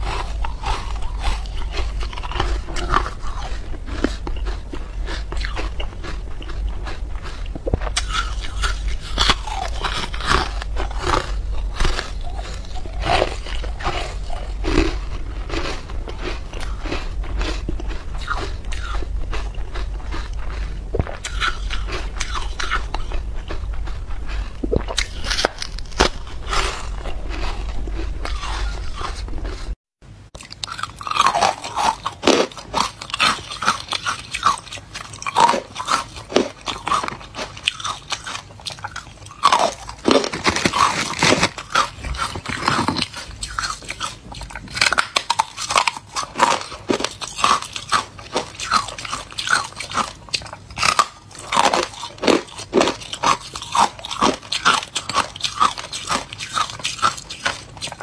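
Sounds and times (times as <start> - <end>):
person crunching ice: 0.0 - 29.7, 30.4 - 58.0.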